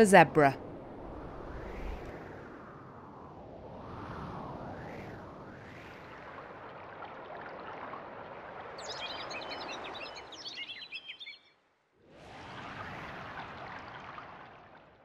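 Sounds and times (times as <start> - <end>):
sea water: 0.0 - 15.0
small birds chirping: 8.8 - 11.6.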